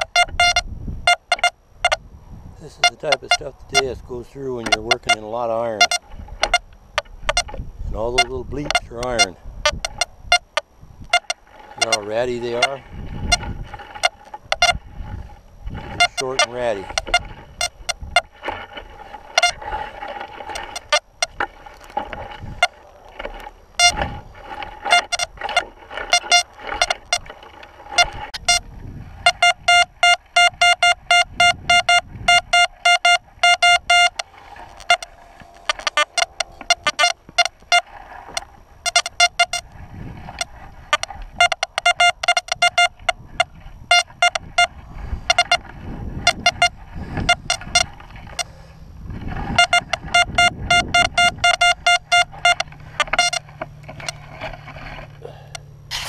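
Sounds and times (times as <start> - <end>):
hand digger scraping dirt: 2.6 - 56.0
metal detector short beeps: 15.8 - 19.9, 22.2 - 27.3, 27.9 - 48.6, 49.4 - 54.2.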